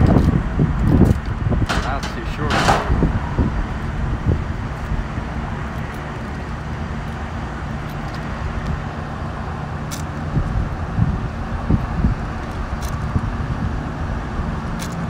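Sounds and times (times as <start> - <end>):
low rumble: 0.0 - 9.6.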